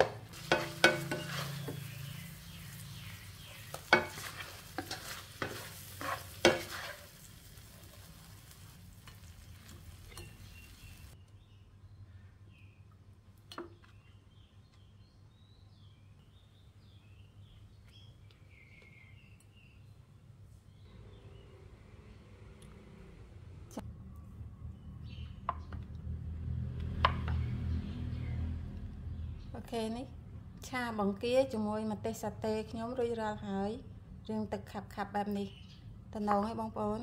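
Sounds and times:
spatula scraping and knocking wok: 0.0s - 11.2s
shrimp sizzling in a wok: 0.4s - 11.2s.

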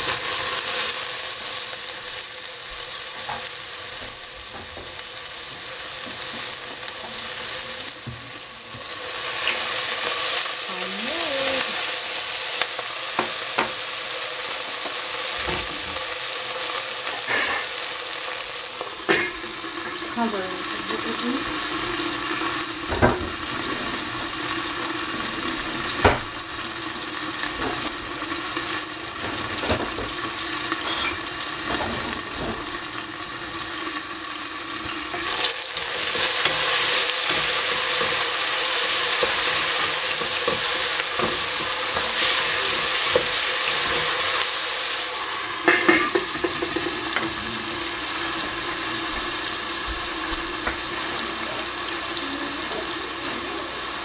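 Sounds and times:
vegetables sizzling in oil: 0.0s - 54.0s
wooden spatula stirring vegetables: 34.8s - 44.6s.

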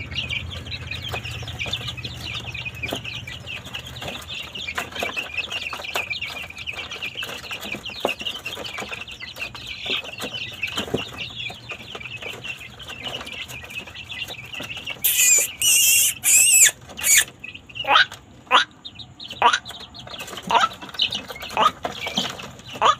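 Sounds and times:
chicks peeping: 0.0s - 22.9s
loud shrill peeps: 15.0s - 18.7s.

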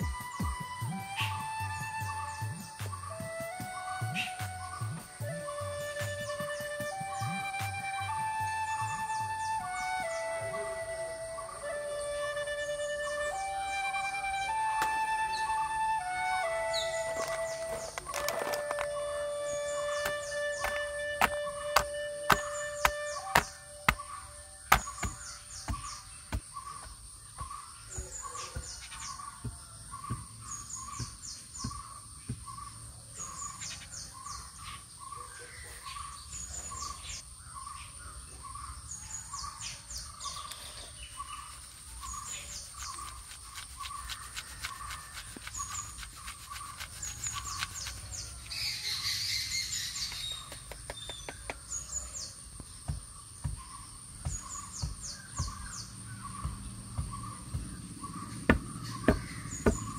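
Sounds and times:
birds high chirps: 0.0s - 59.9s
high insect whine: 3.7s - 35.1s.

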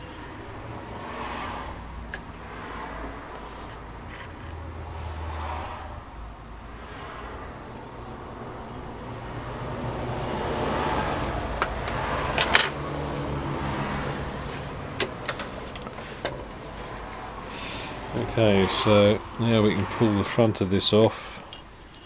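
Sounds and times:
metal parts clinking: 3.3s - 4.6s, 12.4s - 12.8s.

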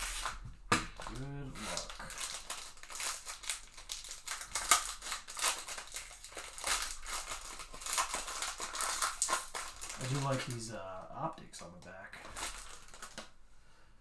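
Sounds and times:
wrapper snapping: 0.1s - 10.6s, 12.2s - 13.3s
foil wrapper crinkling: 1.0s - 10.6s, 12.2s - 13.3s.

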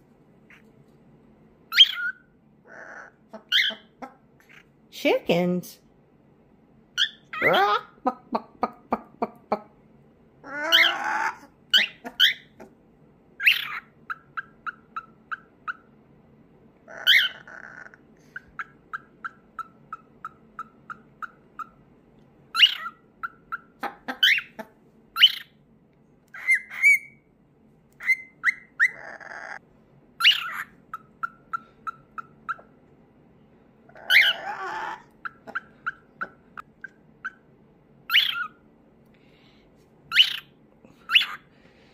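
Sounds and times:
harsh bird squawks: 1.7s - 4.7s, 10.4s - 12.6s, 13.4s - 15.9s, 16.9s - 21.8s, 22.5s - 24.6s, 25.2s - 25.6s, 26.4s - 27.2s, 30.2s - 32.7s, 33.9s - 37.5s, 38.1s - 38.6s, 40.1s - 41.5s
bird clucking: 10.5s - 12.8s, 22.6s - 24.8s, 34.0s - 37.4s.

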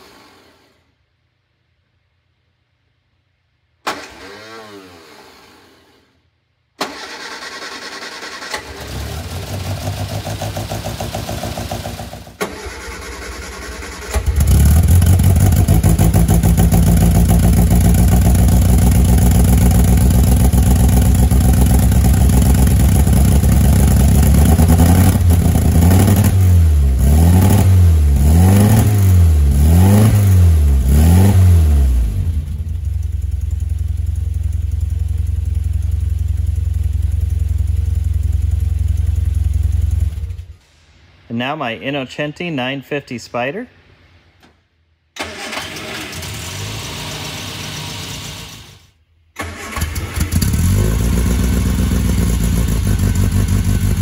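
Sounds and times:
car engine running and revving: 14.4s - 33.7s, 50.4s - 54.0s.

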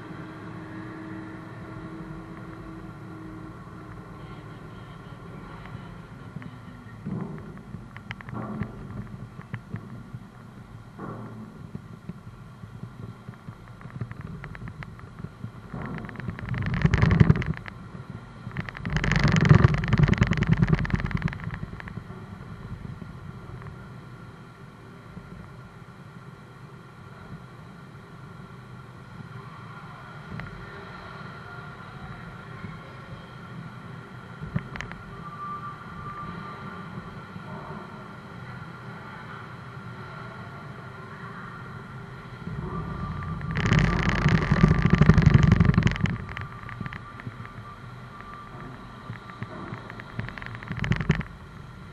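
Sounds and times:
rapid rattling clatter: 11.0s - 22.1s, 42.4s - 51.4s
car rumbling over steel ramp: 42.0s - 51.5s.

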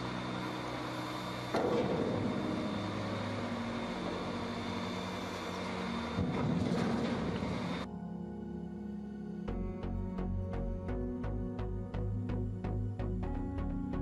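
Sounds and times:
truck diesel engine running: 0.0s - 7.9s
music: 0.0s - 14.0s.

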